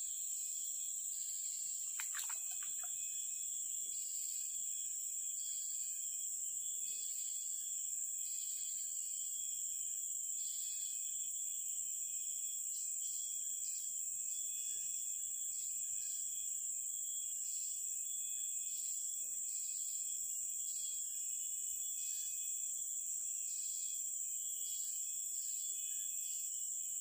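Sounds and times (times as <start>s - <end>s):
insects droning shrilly: 1.6s - 3.4s
insect call switching on and off: 1.8s - 3.2s.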